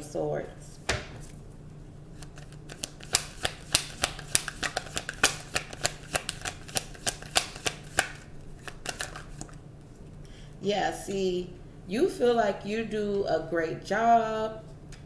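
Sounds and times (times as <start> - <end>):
cards being shuffled: 2.2 - 9.6.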